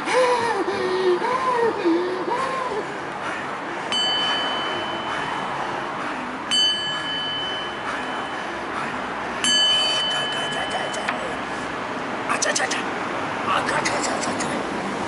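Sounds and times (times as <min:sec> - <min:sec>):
singing bowl ringing: 0:03.9 - 0:05.6, 0:06.5 - 0:08.4, 0:09.4 - 0:11.5.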